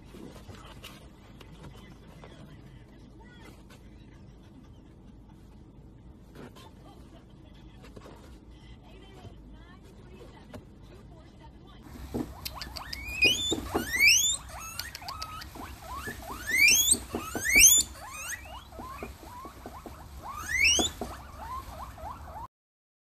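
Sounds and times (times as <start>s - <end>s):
guinea pigs wheeking: 11.9s - 22.5s.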